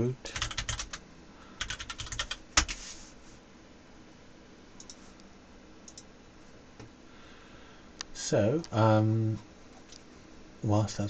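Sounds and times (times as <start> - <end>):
keyboard typing: 0.4 - 1.0, 1.6 - 2.8.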